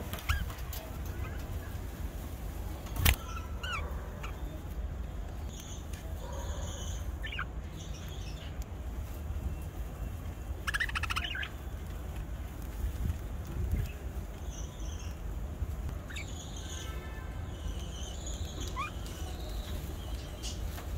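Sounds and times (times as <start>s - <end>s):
budgerigars chirping: 3.1s - 4.7s, 6.6s - 8.5s, 10.6s - 11.6s, 16.1s - 16.9s, 17.6s - 20.6s.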